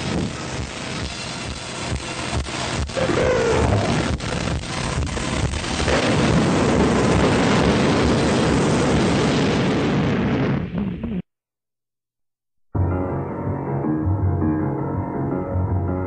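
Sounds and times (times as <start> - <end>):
loud noisy roar: 2.2 - 9.2.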